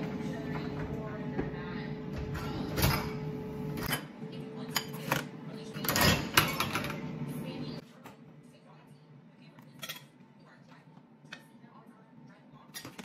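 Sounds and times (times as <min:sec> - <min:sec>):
dishes clattering on a wire rack: 0:02.2 - 0:07.1, 0:12.7 - 0:13.0
loud dish clanks: 0:05.8 - 0:07.0.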